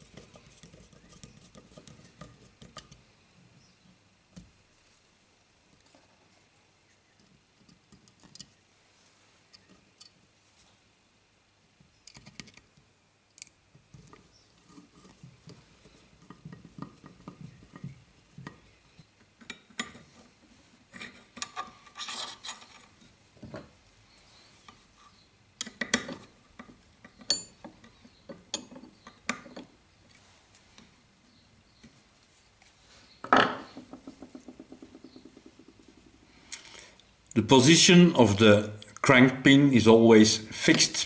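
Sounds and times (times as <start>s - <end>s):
metal scraping on metal: 20.9s - 22.9s
sharp ringing metal taps: 27.3s - 27.6s.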